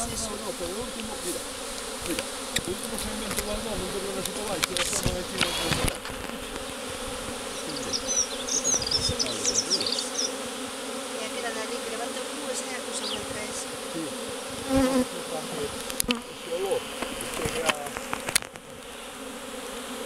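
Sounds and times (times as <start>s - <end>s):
bees buzzing: 0.0s - 20.0s
high chirps: 7.5s - 10.4s.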